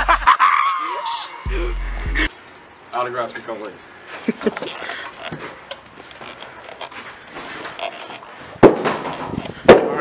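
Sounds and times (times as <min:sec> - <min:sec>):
rustling handling noise: 0:04.1 - 0:09.7
footsteps: 0:04.1 - 0:10.0
door banging shut: 0:08.6 - 0:10.0.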